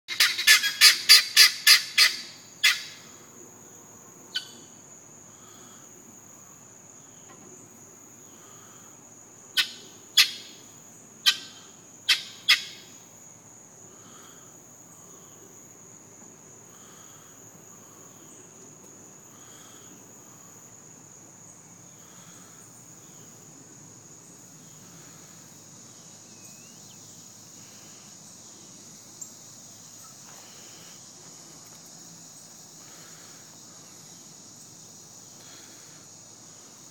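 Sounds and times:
guinea fowl calling: 0.1s - 3.0s, 9.6s - 10.6s, 11.2s - 12.9s
insect chorus: 0.1s - 36.9s.

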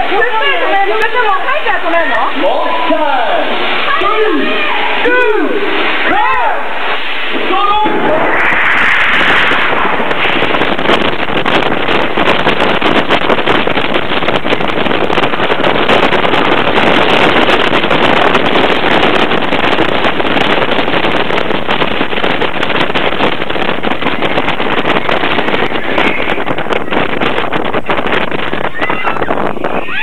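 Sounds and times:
wind rushing over microphone: 0.0s - 30.0s
roller coaster rattling on track: 9.3s - 30.0s.

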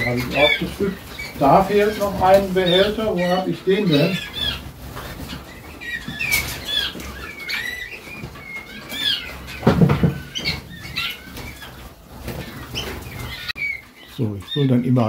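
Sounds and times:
wing flutters: 0.0s - 14.7s
canaries chirping: 0.0s - 15.0s
knock: 9.6s - 10.3s.

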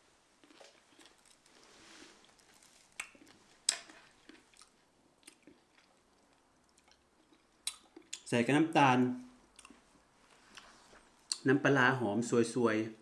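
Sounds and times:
person chewing: 0.4s - 8.2s, 9.5s - 11.4s.

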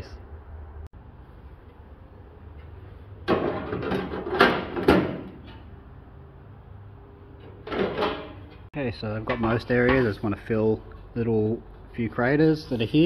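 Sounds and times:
sheet metal scraping and knocking: 7.4s - 10.2s.

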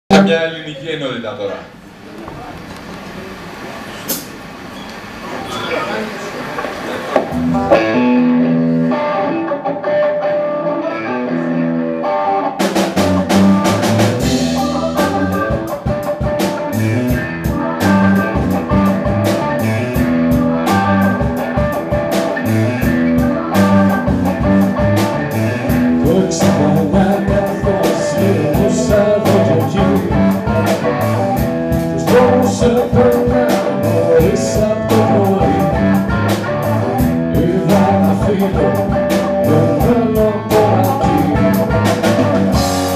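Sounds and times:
drum kit: 6.7s - 9.6s, 12.3s - 42.9s
blues-rock band playing: 7.1s - 42.9s.

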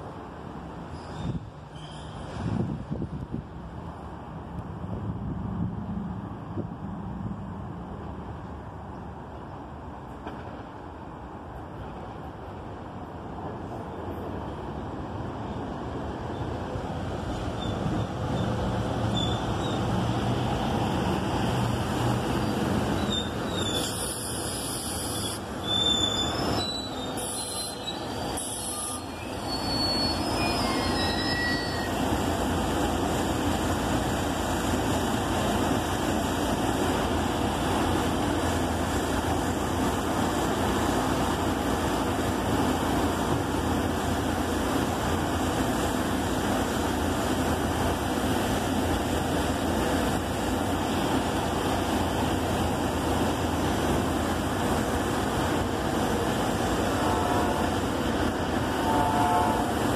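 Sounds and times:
train brakes squealing: 0.8s - 2.4s, 17.5s - 20.0s, 22.4s - 32.2s.

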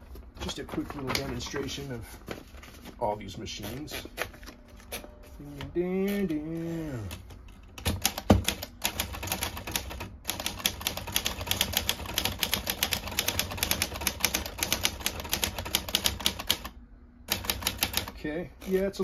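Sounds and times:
manual typewriter typing: 7.0s - 16.7s, 17.3s - 19.0s.

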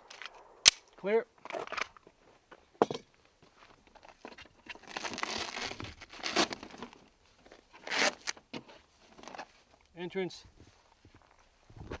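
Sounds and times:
fabric and plastic rustling: 4.1s - 9.7s.

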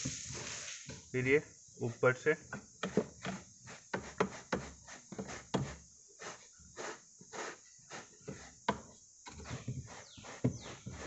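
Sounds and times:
brush scrubbing floor mat: 3.7s - 8.6s, 9.4s - 11.0s.

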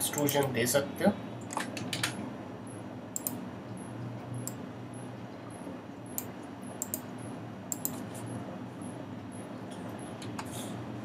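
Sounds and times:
low computer hum: 0.0s - 11.0s
computer mouse clicks: 3.2s - 3.4s, 6.2s - 7.1s, 7.7s - 8.3s.

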